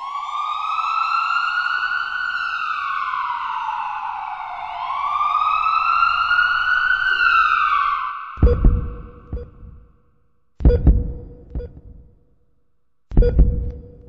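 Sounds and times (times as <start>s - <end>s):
emergency siren wailing: 0.0s - 9.4s.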